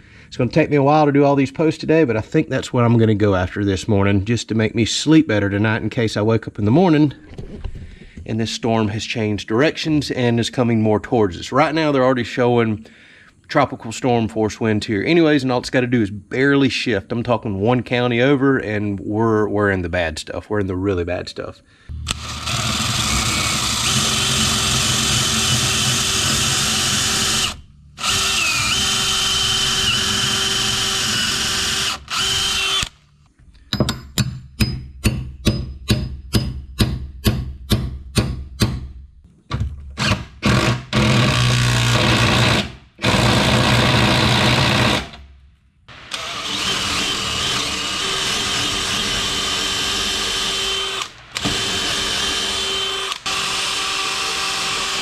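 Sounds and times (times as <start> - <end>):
cordless drill boring through wood: 22.1 - 33.0, 40.0 - 45.2, 45.9 - 55.0
bolt being hammered into wood: 33.7 - 38.9.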